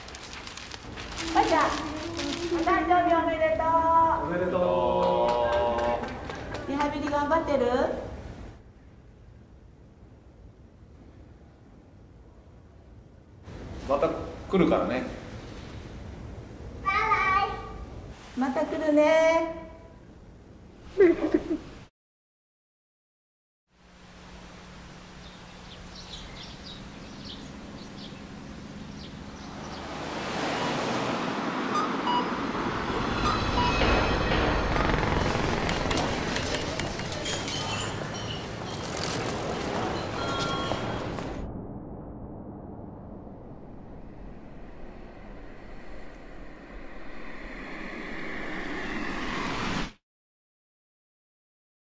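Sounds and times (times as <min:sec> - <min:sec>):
ambient noise: 0:23.8 - 0:50.0
rushing noise: 0:28.2 - 0:50.0.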